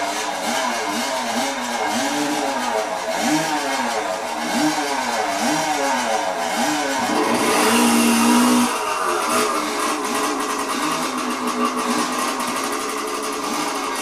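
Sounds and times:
chainsaw engine revving: 0.0s - 14.0s.

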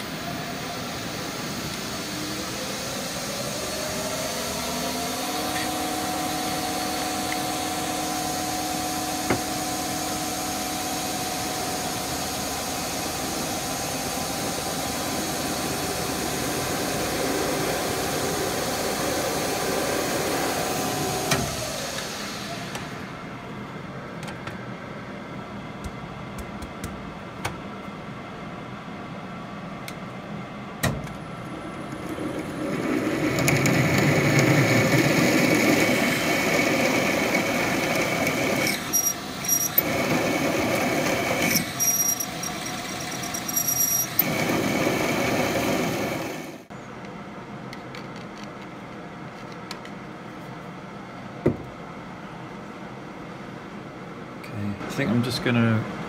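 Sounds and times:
lathe machine hum: 0.0s - 24.0s, 31.3s - 46.7s
drill squealing in steel: 37.3s - 44.9s.

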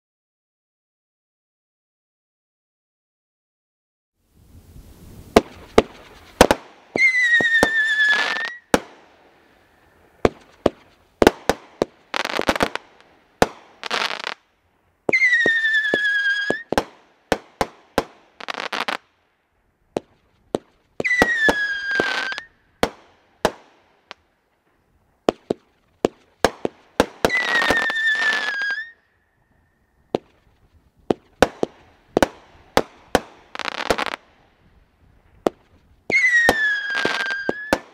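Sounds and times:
short noisy firework bursts: 4.4s - 19.1s, 20.0s - 24.3s, 25.2s - 37.9s
firework whistles falling in pitch: 5.1s - 8.8s, 15.1s - 16.8s, 21.0s - 22.6s, 27.2s - 30.4s, 35.5s - 37.9s
firework sharp bangs: 5.2s - 14.4s, 15.1s - 19.0s, 19.9s - 24.2s, 25.2s - 28.9s, 30.1s - 34.5s, 35.1s - 37.9s.

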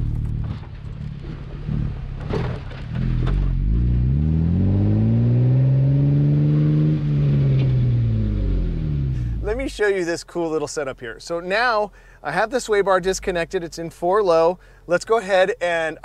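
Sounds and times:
car engine and exhaust: 0.0s - 9.8s, 13.0s - 14.9s
tyres and driveline rumble: 0.0s - 16.0s.

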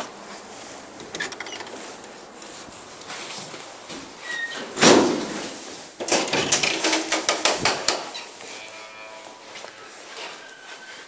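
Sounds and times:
footsteps on tiled floor: 0.0s - 4.3s, 7.3s - 11.0s
glass door banging shut: 4.5s - 5.4s, 6.0s - 8.2s.

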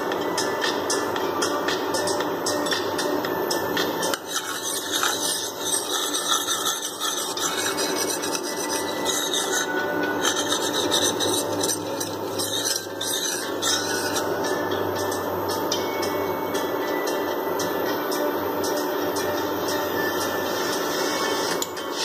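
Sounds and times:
metal spoon scraping frying pan: 4.1s - 14.3s.

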